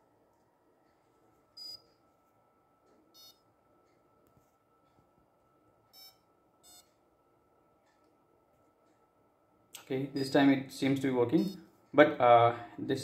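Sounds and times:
short electronic beeps: 0:01.6 - 0:01.8, 0:03.2 - 0:03.4, 0:05.9 - 0:06.9.

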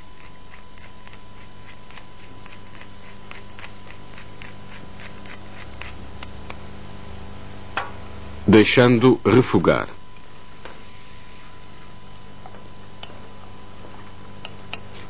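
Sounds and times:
pepper mill grinding: 0:00.0 - 0:06.7.

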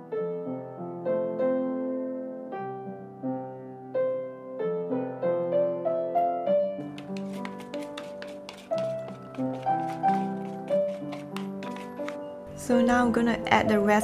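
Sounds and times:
gentle piano melody: 0:00.0 - 0:07.2.

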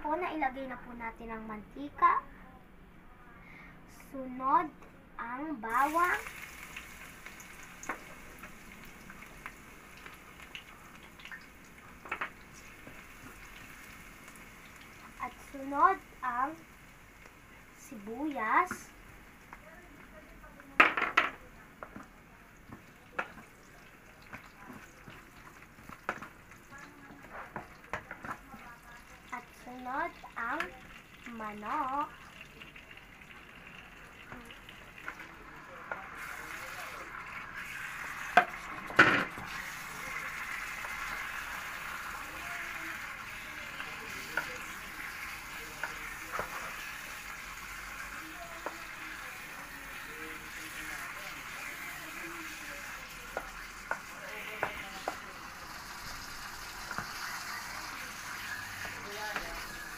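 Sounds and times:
light sizzle of frying: 0:03.4 - 0:59.9
wooden spatula scraping pot: 0:27.1 - 0:28.6.

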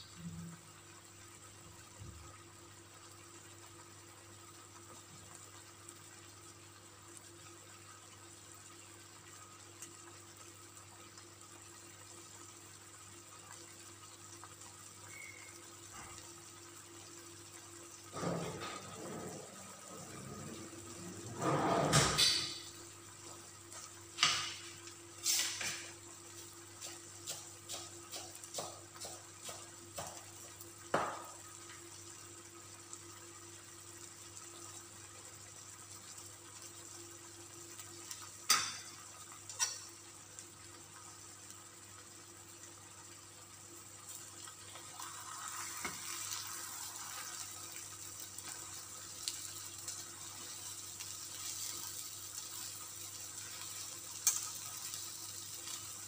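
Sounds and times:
faint steady hum: 0:00.0 - 0:25.2.

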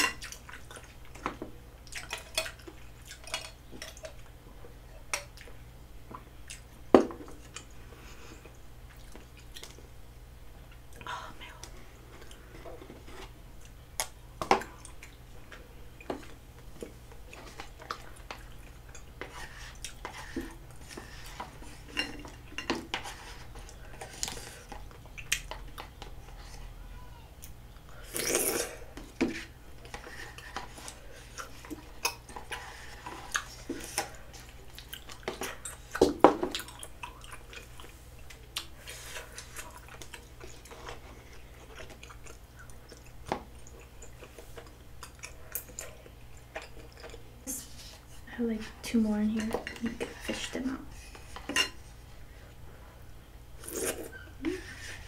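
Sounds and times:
chewing: 0:00.0 - 0:04.3, 0:29.8 - 0:47.4.

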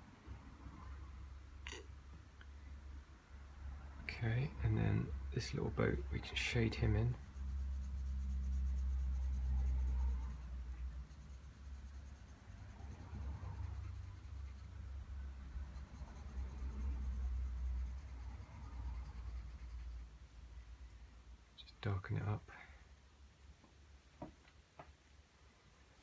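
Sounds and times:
pencil shading on paper: 0:06.2 - 0:20.1.

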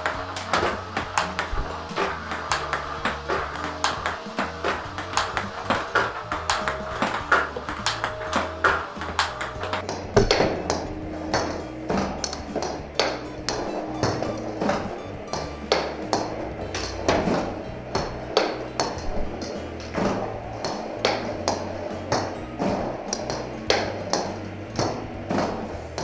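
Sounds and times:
ball bouncing on table: 0:00.0 - 0:16.3
background music: 0:00.0 - 0:26.0
table tennis ball hits: 0:00.0 - 0:26.0.

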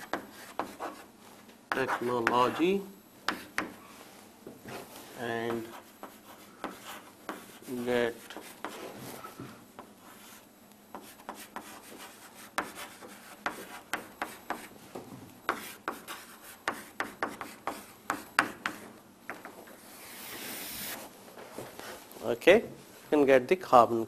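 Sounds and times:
pen scratching on paper: 0:00.0 - 0:01.1, 0:01.7 - 0:02.6, 0:05.6 - 0:08.9, 0:11.0 - 0:14.7.

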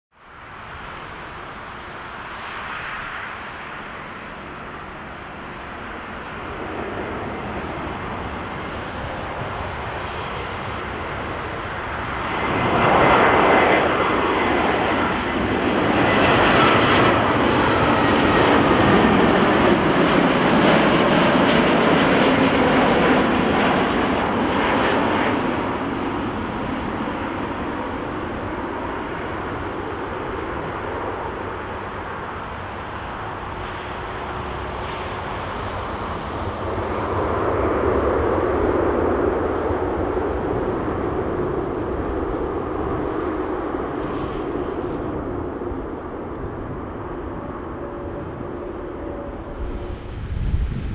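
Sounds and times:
jet engines on approach: 0:00.1 - 0:50.9.

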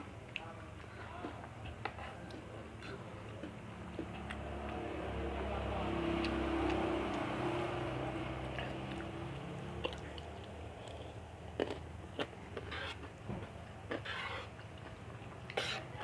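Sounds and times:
chewing and eating: 0:00.0 - 0:16.0
vehicle engine hum: 0:03.5 - 0:15.5.

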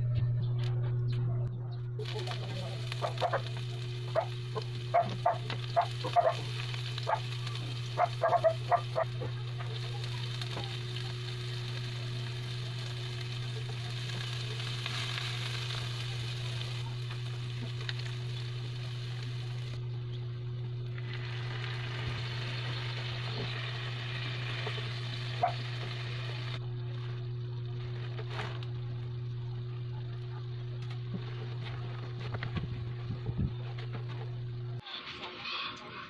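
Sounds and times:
steady low hum: 0:00.0 - 0:34.8
onions sizzling in oil: 0:02.0 - 0:29.5.

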